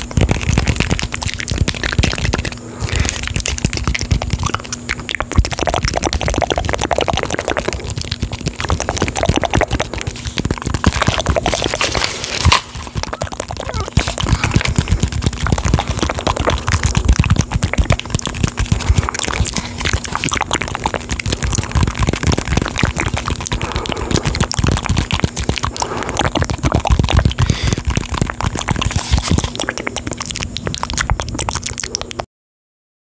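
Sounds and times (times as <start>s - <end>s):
faint steady hum: 0.0s - 32.3s.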